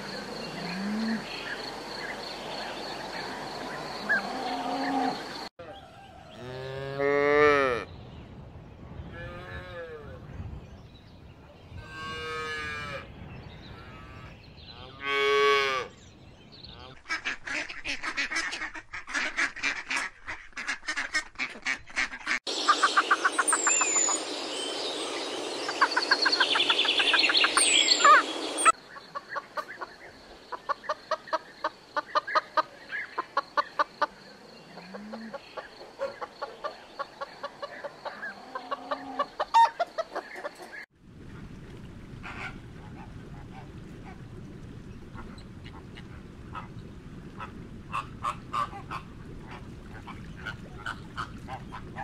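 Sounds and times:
toucan croaking calls: 25.7 - 40.8.

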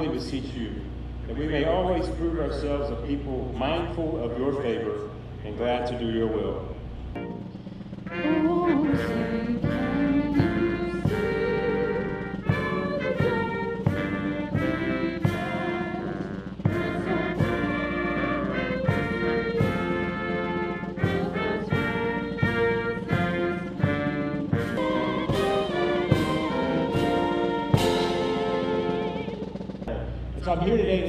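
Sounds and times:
brass band playing slow piece: 6.8 - 30.9
drum strikes: 7.2 - 31.0.

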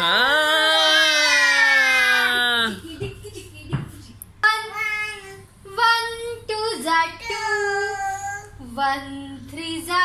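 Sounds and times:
child singing: 4.5 - 10.0.

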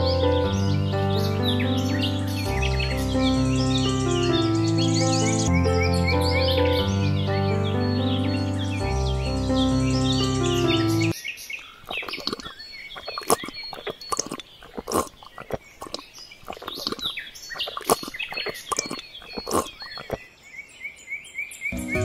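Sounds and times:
birds chirping: 0.0 - 22.0
pebbles clicking and tapping: 11.9 - 20.2.

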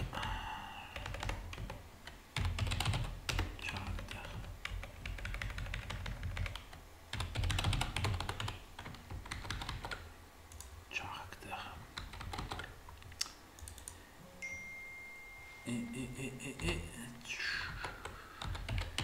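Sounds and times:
computer keyboard typing: 0.9 - 10.8, 12.0 - 14.0, 17.6 - 19.0.

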